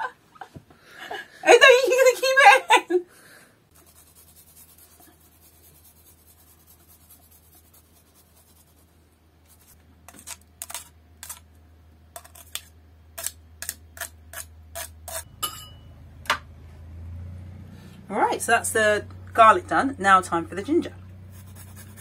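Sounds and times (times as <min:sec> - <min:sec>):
knife scraping metal grater: 0:10.1 - 0:11.4, 0:12.2 - 0:15.3.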